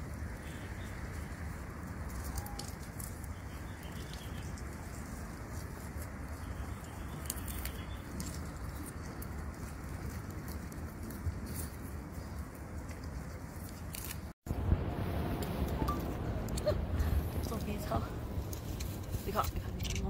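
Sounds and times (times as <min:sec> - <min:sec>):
low rumble: 0:14.5 - 0:20.0.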